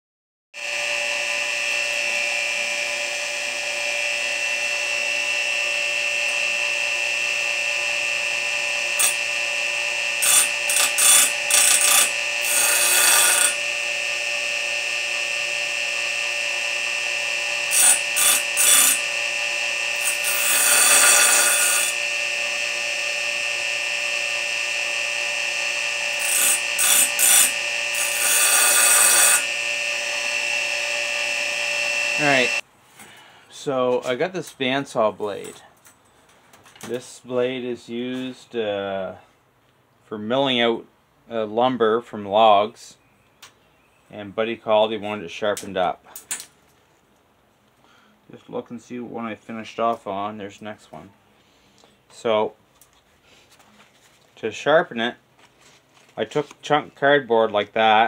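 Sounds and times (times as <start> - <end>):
bench grinder whine: 0.6 - 32.6.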